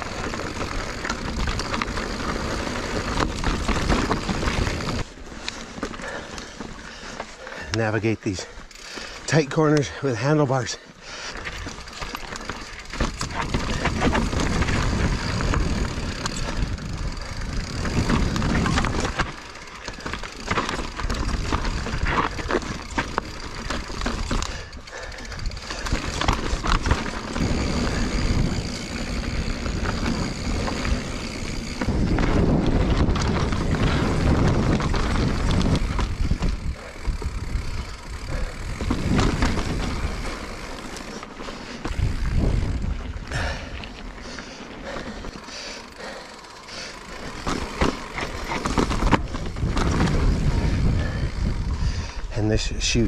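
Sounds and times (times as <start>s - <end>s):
tyres crunching over dirt and stone: 0.0s - 7.0s, 17.6s - 24.6s, 25.2s - 44.2s, 47.0s - 50.9s
bike chain and frame rattling: 0.0s - 53.0s
wind buffeting microphone: 12.6s - 40.7s, 41.8s - 44.0s, 47.3s - 53.0s.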